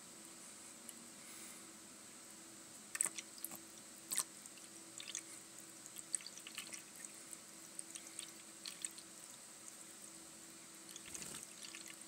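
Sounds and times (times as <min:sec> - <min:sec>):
faint steady hum: 0:00.0 - 0:12.0
water drips and splashes: 0:03.0 - 0:05.2, 0:05.8 - 0:07.2, 0:07.8 - 0:09.8, 0:10.9 - 0:12.0
water trickling into bowl: 0:03.0 - 0:07.1, 0:07.7 - 0:09.9, 0:10.9 - 0:12.0.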